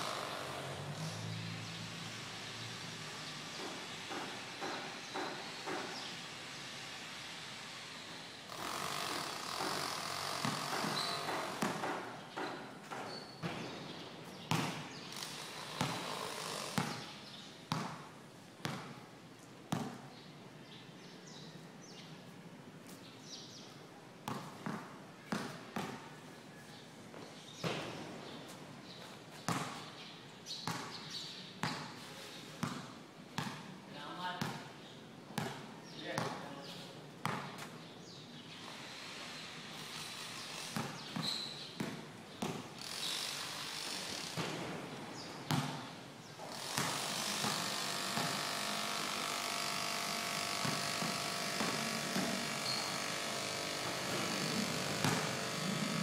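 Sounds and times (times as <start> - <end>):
outdoor background noise: 0.0 - 56.0
basketball bouncing on concrete: 9.5 - 17.1, 17.7 - 19.1, 19.7 - 20.1, 24.2 - 26.2, 27.6 - 28.2, 29.3 - 30.0, 30.6 - 32.0, 32.6 - 34.7, 35.4 - 36.6, 37.2 - 37.8, 40.6 - 42.8, 45.4 - 45.9, 46.6 - 49.2, 50.3 - 56.0.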